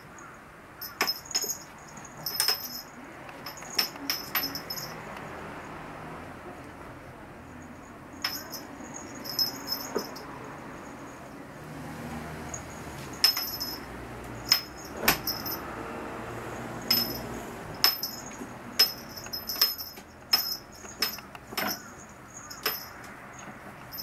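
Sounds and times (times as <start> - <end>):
small bell jingling: 0.8 - 5.1, 8.1 - 11.3, 12.5 - 15.7, 16.8 - 24.0.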